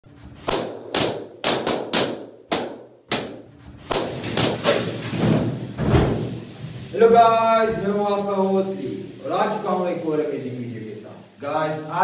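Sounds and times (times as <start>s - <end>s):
balloons bursting: 0.3s - 7.2s.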